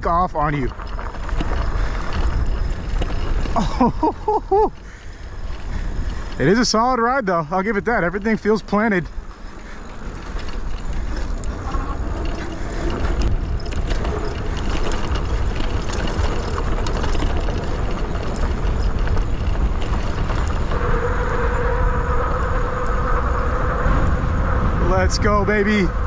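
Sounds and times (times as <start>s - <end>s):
bike rattling on dirt trail: 0.0s - 26.0s
wind on microphone: 7.6s - 26.0s.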